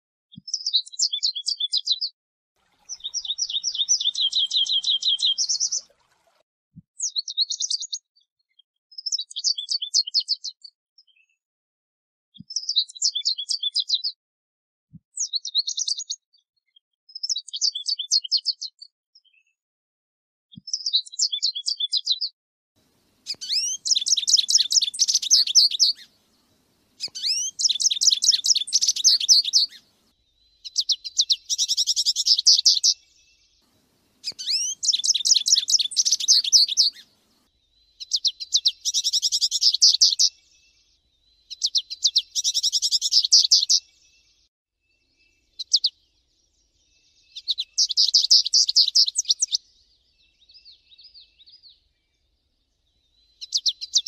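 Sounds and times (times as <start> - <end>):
finch twittering song: 2.8 - 5.9, 22.8 - 54.0.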